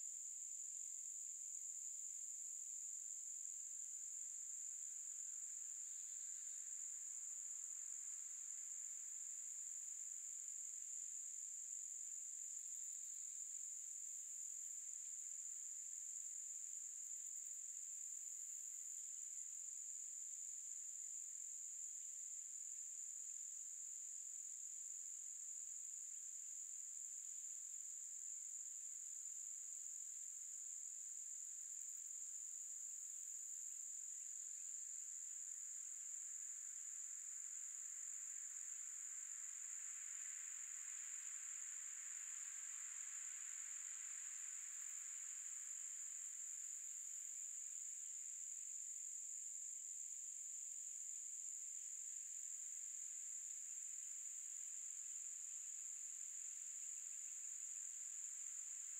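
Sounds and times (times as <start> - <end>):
insects trilling: 34.0 - 49.1, 52.0 - 58.9.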